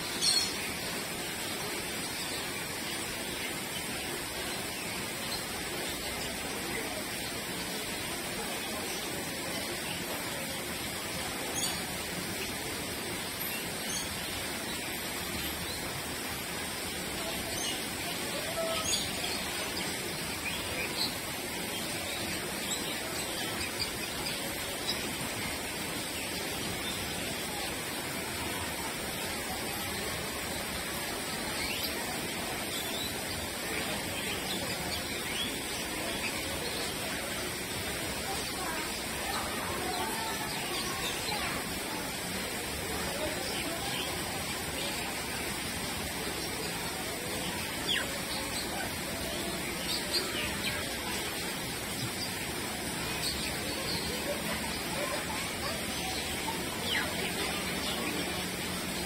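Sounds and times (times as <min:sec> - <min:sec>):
running water: 0:00.0 - 0:59.0.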